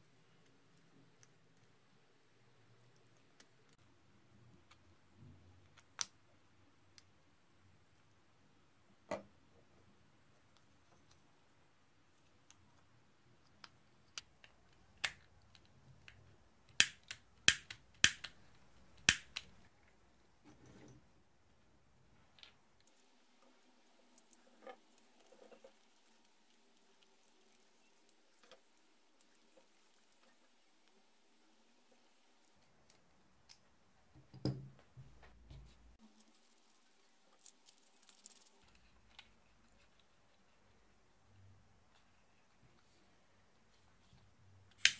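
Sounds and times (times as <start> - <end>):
rustling: 35.0 - 44.3.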